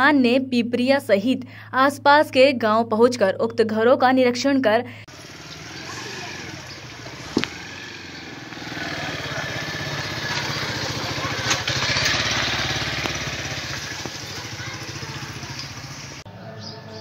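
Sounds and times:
small engine pulsing: 5.1s - 16.2s.

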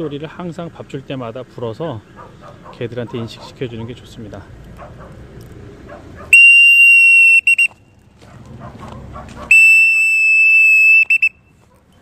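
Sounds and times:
hand whistle blasts: 6.4s - 7.8s, 9.5s - 11.4s.

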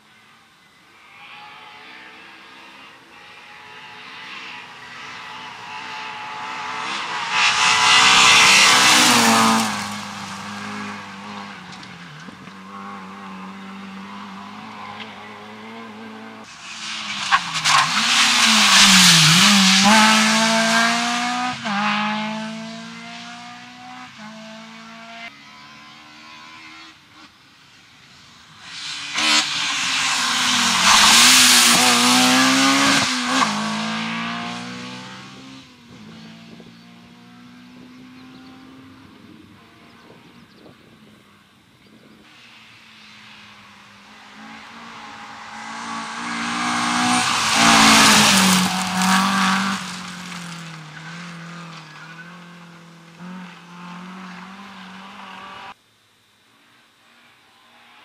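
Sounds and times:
gravel and tyre noise: 0.0s - 58.0s
rally car engine at full throttle: 1.0s - 27.4s, 28.6s - 41.2s, 42.2s - 55.8s.

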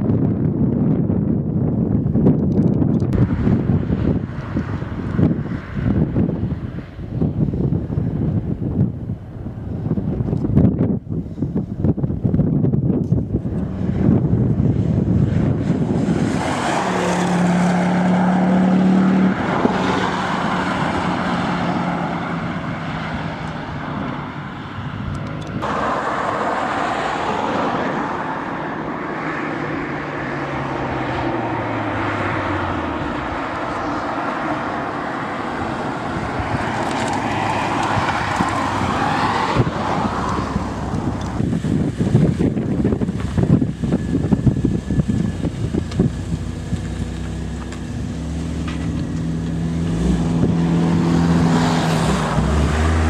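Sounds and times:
car engine driving by: 13.3s - 53.0s.

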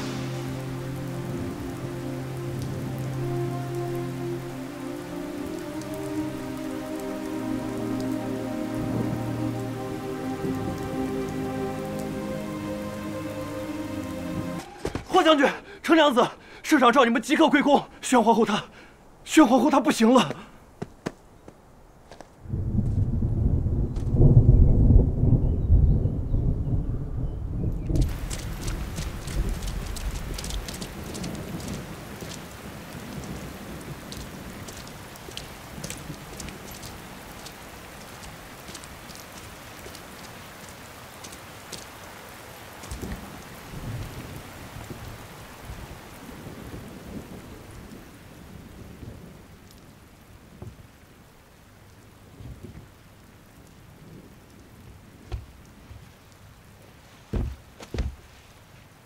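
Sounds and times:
low thunder rolls: 0.0s - 2.9s, 22.4s - 39.2s, 43.0s - 49.5s
heavy rain pouring: 0.0s - 21.2s, 22.2s - 59.0s.

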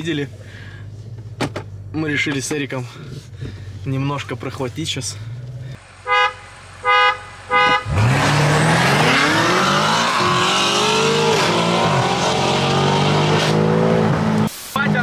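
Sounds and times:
car horn toots: 6.0s - 8.1s
car engine accelerating hard: 7.8s - 14.5s.

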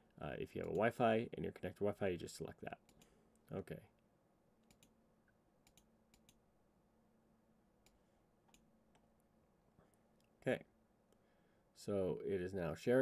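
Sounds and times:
computer mouse clicks: 0.6s - 1.0s, 4.6s - 5.0s, 5.6s - 6.4s, 7.8s - 9.1s.

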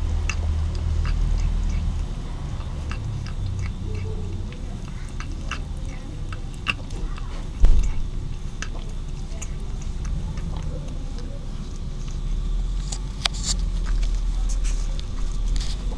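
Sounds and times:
cat lapping milk: 0.0s - 15.9s
thump: 7.6s - 8.0s.

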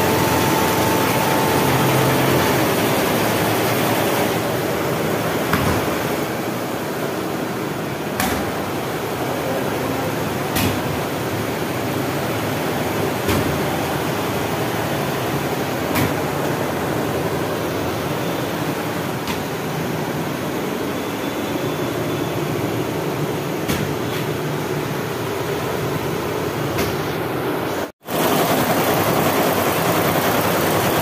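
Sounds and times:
embroidery machine drone: 0.0s - 5.2s.

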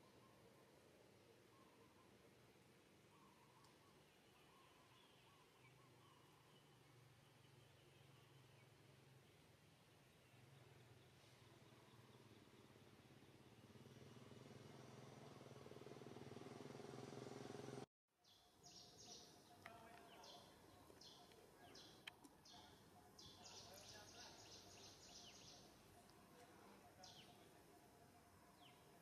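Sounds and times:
birds chirping: 18.2s - 29.0s.

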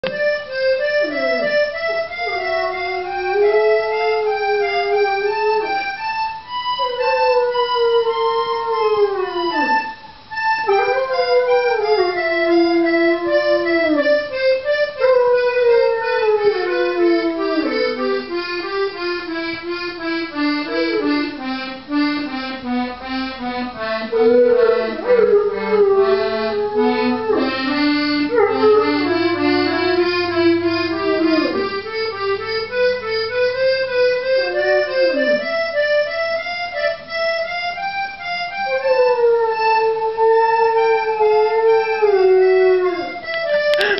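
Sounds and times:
accordion: 0.0s - 43.9s
dog howling: 1.0s - 5.8s, 6.8s - 10.0s, 10.7s - 14.1s, 15.0s - 18.0s, 20.7s - 21.2s, 24.1s - 31.6s, 34.3s - 35.6s, 38.6s - 43.2s.

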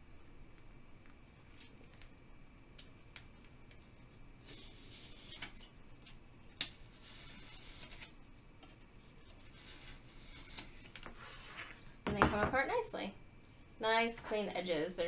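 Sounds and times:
craft knife cutting foam board: 4.4s - 5.7s, 6.6s - 8.2s, 9.4s - 11.7s.

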